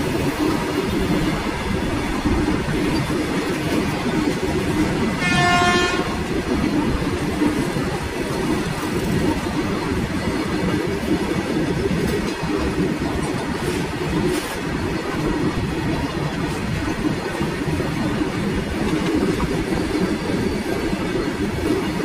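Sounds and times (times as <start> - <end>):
train wheels rumbling on rail: 0.0 - 22.0
train horn: 5.0 - 6.5.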